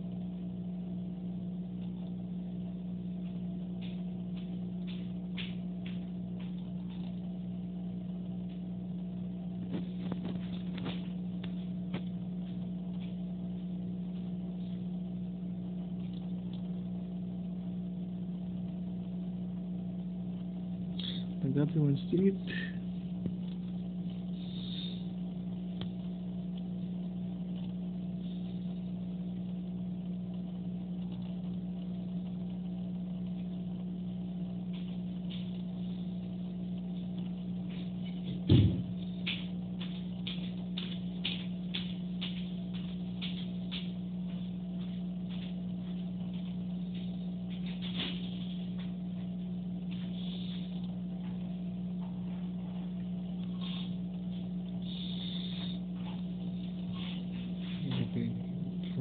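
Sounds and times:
low machine hum: 0.0s - 59.0s
thump: 38.5s - 38.9s.

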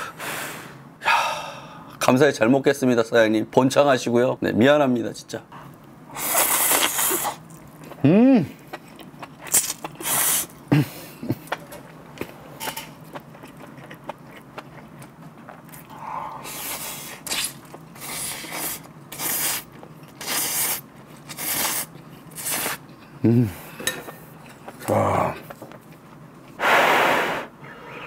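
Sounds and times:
noodles being slurped: 6.2s - 7.6s
quiet chewing: 11.3s - 18.0s.

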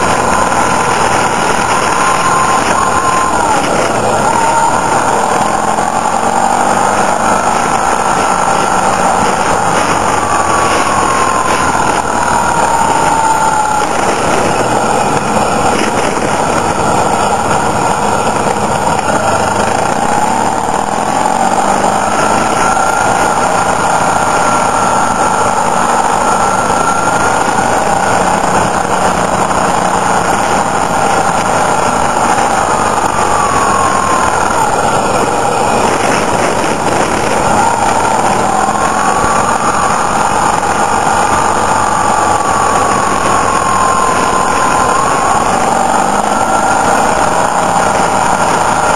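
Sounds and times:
motorcycle engine running: 0.0s - 48.9s
road and wind noise: 0.0s - 48.9s.

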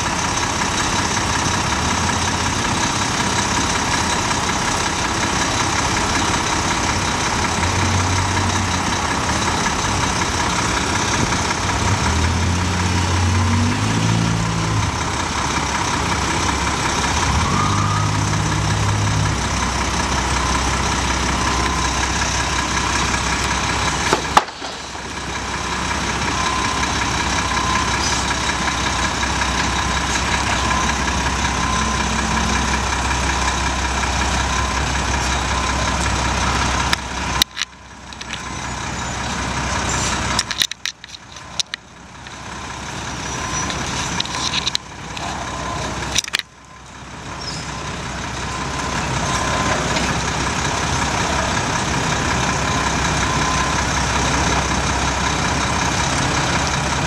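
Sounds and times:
diesel engines idling: 0.0s - 57.0s.

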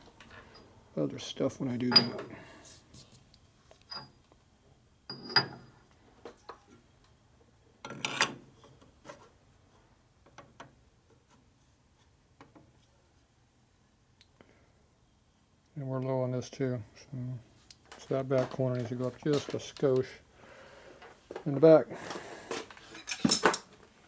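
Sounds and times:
metal tools clinking on lathe: 1.9s - 2.3s, 3.9s - 4.1s, 22.9s - 23.7s.

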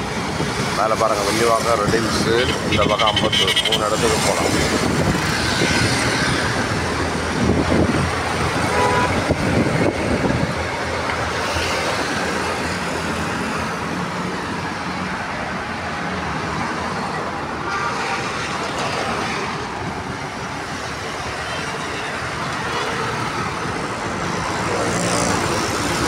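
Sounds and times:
road traffic passing: 0.0s - 26.0s
vehicle horn toot: 8.7s - 9.2s.

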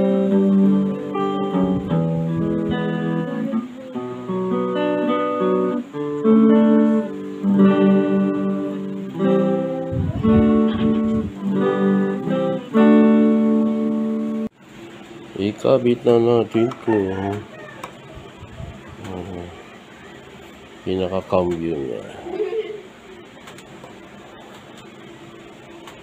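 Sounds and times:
electric guitar chords strummed: 0.0s - 14.6s.

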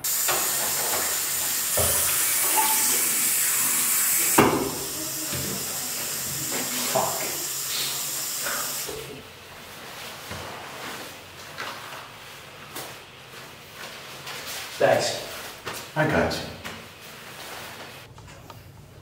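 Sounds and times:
water rushing in urinals flushing: 0.0s - 9.3s.

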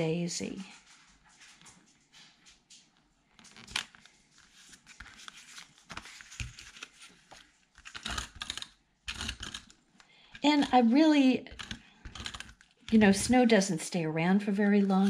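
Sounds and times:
paper sliding and rustling: 3.4s - 8.1s.

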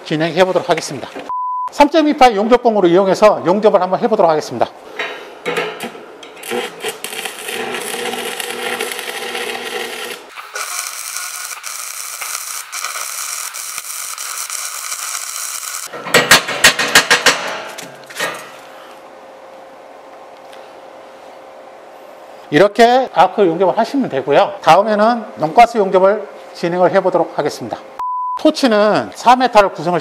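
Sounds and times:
welding arc crackling hiss: 5.8s - 15.9s.

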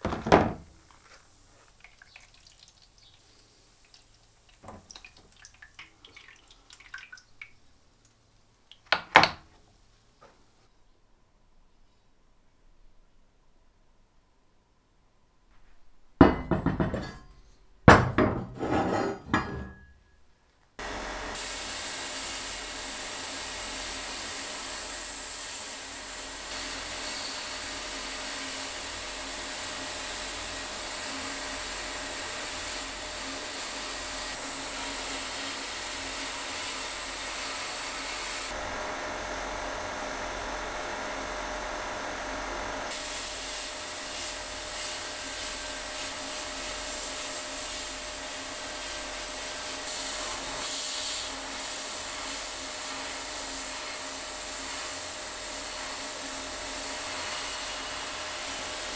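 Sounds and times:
sandblast gun hissing: 20.8s - 58.9s.

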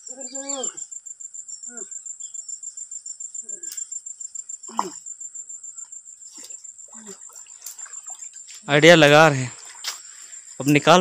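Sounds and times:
insect trilling: 0.0s - 11.0s
faint voice: 0.1s - 0.8s, 1.7s - 1.9s.

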